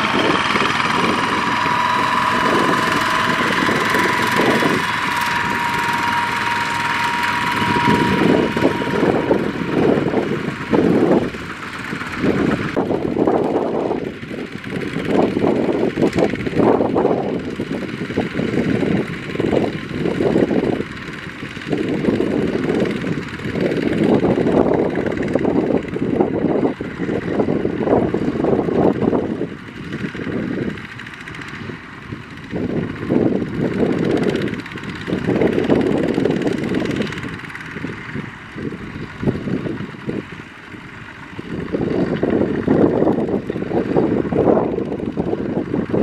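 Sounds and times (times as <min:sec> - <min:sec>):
steady high tone: 0:00.0 - 0:12.8
diesel tractor engines running: 0:00.0 - 0:46.0.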